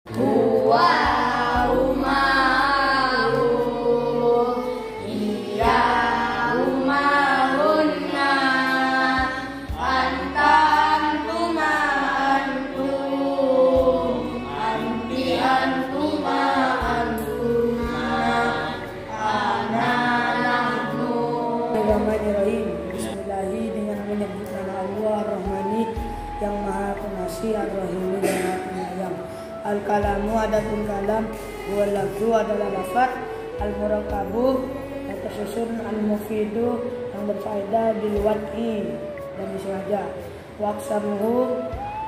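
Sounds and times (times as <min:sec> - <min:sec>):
melodic chanted singing: 0:00.1 - 0:23.2.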